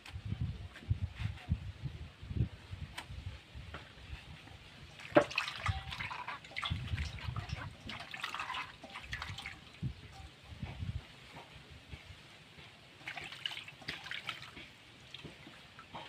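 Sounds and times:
water sloshing in steel bowl: 0:04.8 - 0:10.4, 0:13.0 - 0:16.0.

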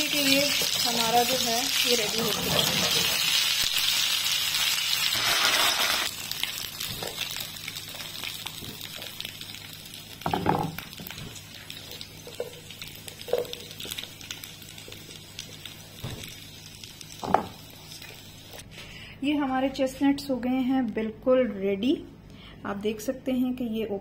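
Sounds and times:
chestnuts sizzling in butter: 0:00.0 - 0:18.6.

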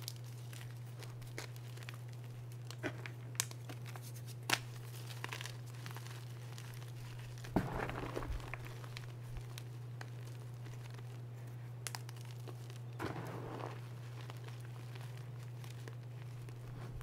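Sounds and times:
steady low hum: 0:00.0 - 0:17.0
chalk crunching by hand: 0:03.9 - 0:11.2, 0:11.8 - 0:17.0.

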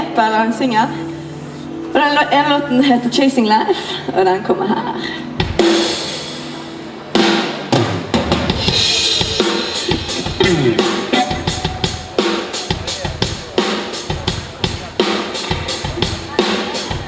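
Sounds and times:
live band music: 0:05.3 - 0:17.0.

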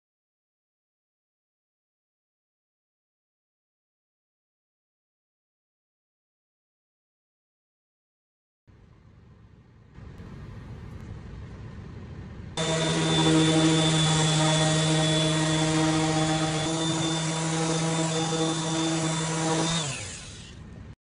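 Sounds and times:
motor winding down: 0:12.6 - 0:20.6
orbital sander motor hum: 0:12.6 - 0:20.8.

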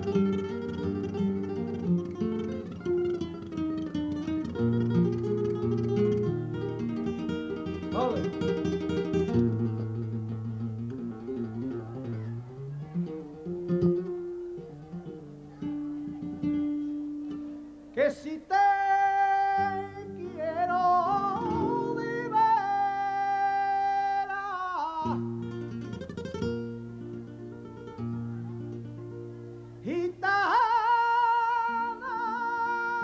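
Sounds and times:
flamenco guitar playing: 0:00.0 - 0:33.0
man singing long note: 0:18.0 - 0:25.3.

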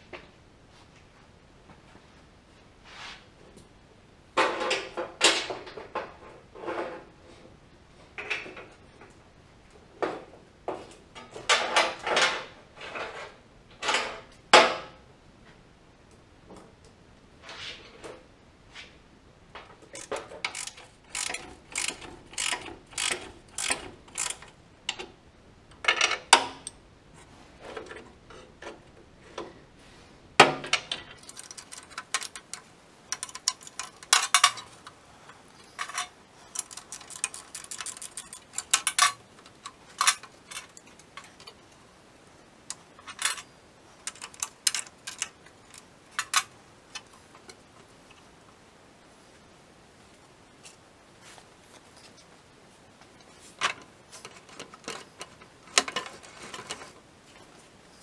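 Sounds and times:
wrench clinking on metal fittings: 0:19.9 - 0:25.0, 0:30.9 - 0:41.8, 0:42.7 - 0:47.6.

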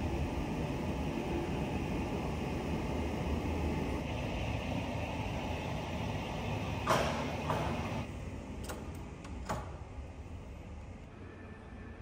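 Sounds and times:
sliding door rattling open: 0:06.5 - 0:08.1.

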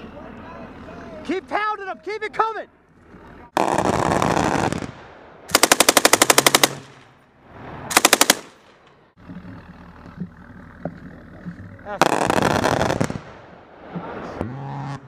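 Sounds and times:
machine gun bursts: 0:05.5 - 0:06.9, 0:07.9 - 0:08.6.

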